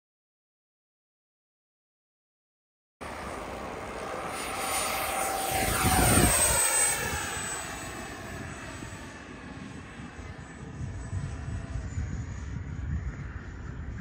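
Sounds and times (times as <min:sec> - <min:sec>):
electric ducted fans whining: 0:03.0 - 0:14.0.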